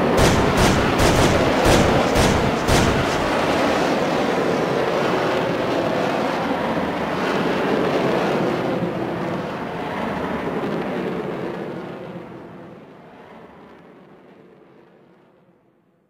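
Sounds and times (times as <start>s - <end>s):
loud rushing rumble: 0.0s - 4.7s.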